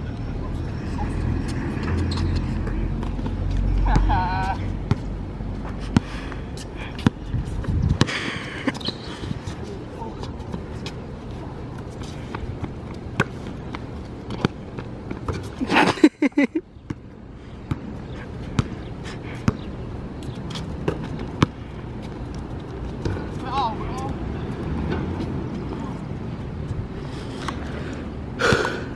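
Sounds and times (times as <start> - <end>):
steady background hum: 0.0 - 28.9
basketball bouncing on asphalt: 1.4 - 8.2, 12.2 - 15.6, 16.8 - 25.3.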